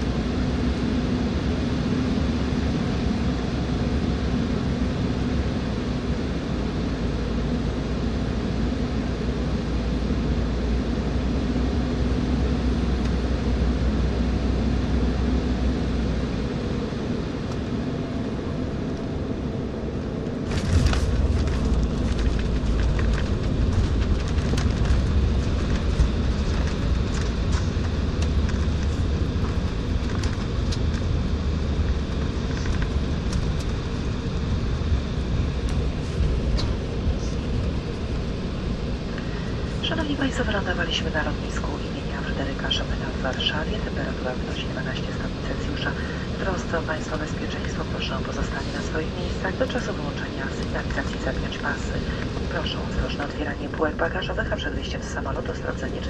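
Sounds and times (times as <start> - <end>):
airplane engine rumble: 0.0 - 56.0
rattles and knocks in cabin: 20.4 - 31.2.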